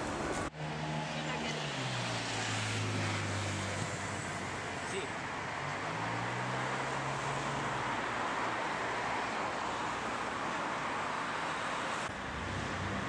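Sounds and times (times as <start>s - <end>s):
road traffic hiss: 0.0s - 13.0s.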